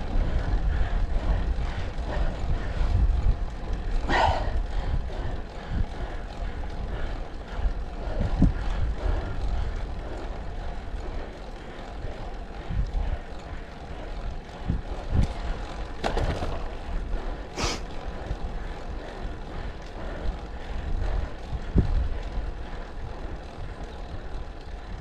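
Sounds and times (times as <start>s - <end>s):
wind rushing over microphone: 0.0s - 11.3s, 14.1s - 25.0s
bike bumps: 15.2s - 16.9s.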